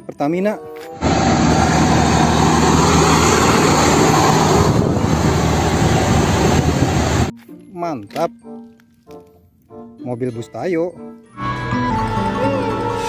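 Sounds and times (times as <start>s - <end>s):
tyre and traffic noise: 0.9s - 7.3s
tanker truck engine running: 1.0s - 7.3s.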